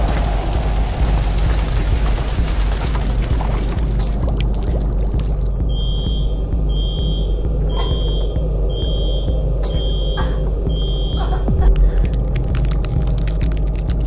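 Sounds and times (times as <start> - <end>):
low steady drone: 0.0 - 14.0
electronic alarm beeping: 5.6 - 11.2.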